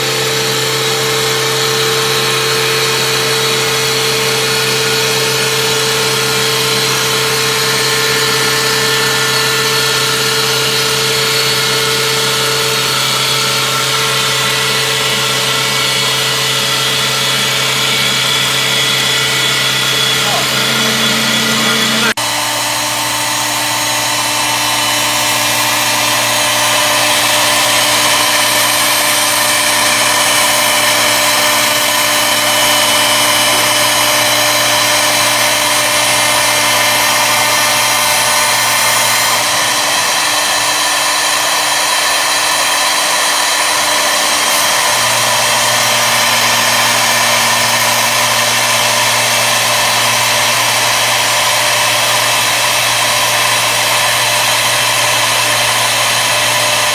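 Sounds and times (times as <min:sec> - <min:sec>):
woodworking machine whine: 0:00.0 - 0:56.9
low machine hum: 0:14.5 - 0:42.3.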